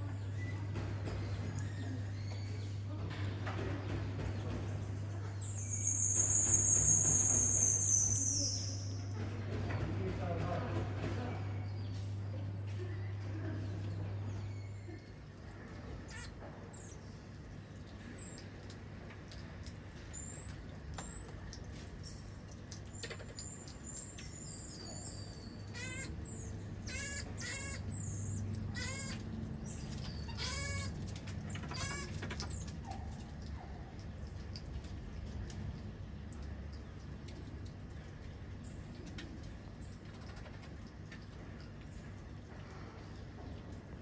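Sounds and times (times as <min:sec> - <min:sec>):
marmosets chirping: 0:05.4 - 0:09.0, 0:16.0 - 0:17.2, 0:22.9 - 0:33.0
marmosets quavering calls: 0:16.0 - 0:17.0, 0:23.0 - 0:32.7.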